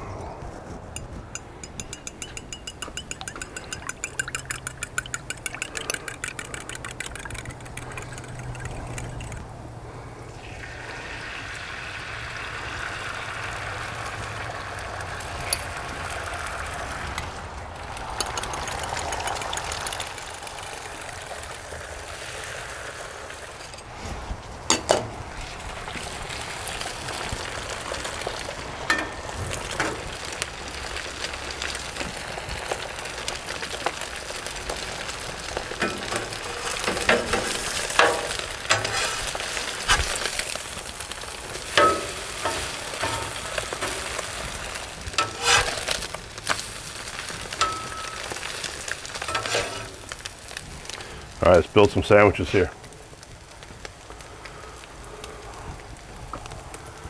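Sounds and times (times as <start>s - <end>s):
eggs sizzling on griddle: 0.8s - 24.0s, 24.6s - 57.0s
metal spatula clicking on steel: 1.4s - 9.4s, 18.2s - 19.8s.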